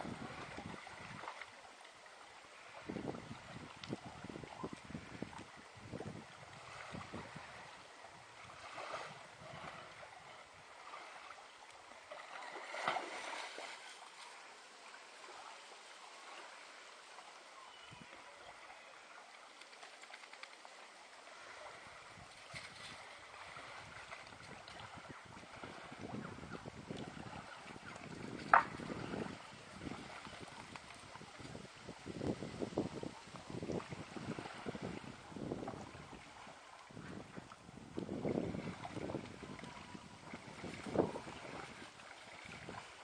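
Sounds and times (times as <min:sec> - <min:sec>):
wind buffeting microphone: 0:00.0 - 0:01.4, 0:02.6 - 0:10.3, 0:21.8 - 0:43.0
water sloshing and splashing: 0:00.0 - 0:43.0.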